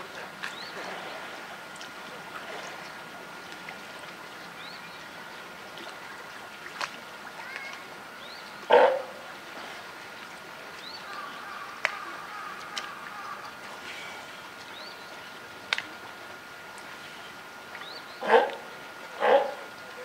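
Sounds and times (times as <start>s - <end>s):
steady background hiss: 0.0s - 20.0s
sea lion call: 11.0s - 13.6s, 18.2s - 20.0s.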